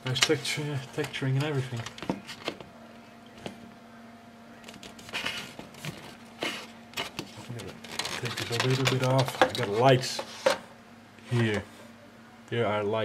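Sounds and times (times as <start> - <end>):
faint steady hum: 0.0 - 13.0
plastic parts clicking: 7.0 - 9.7.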